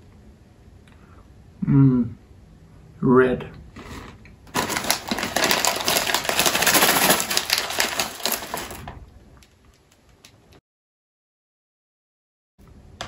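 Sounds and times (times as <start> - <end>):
plastic packet crinkling: 4.5 - 10.4.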